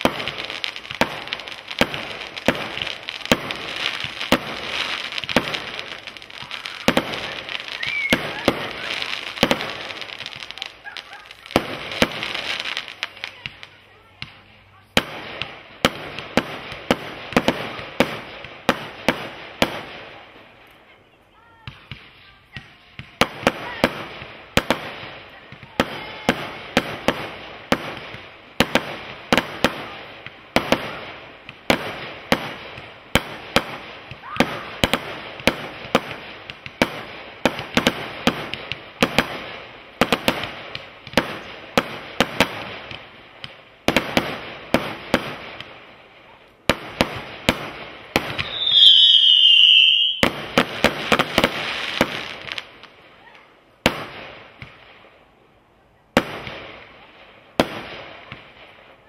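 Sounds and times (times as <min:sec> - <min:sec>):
firework shots and bursts: 0:00.0 - 0:55.3, 0:56.1 - 0:59.0
firework whistle: 0:06.5 - 0:09.1, 0:48.3 - 0:50.4.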